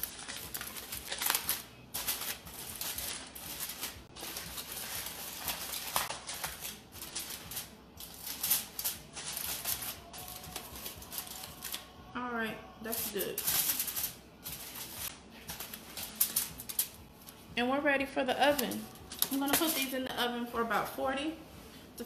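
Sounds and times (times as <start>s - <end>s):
aluminium foil crinkling: 0.0s - 12.0s, 12.9s - 17.5s, 18.3s - 20.1s.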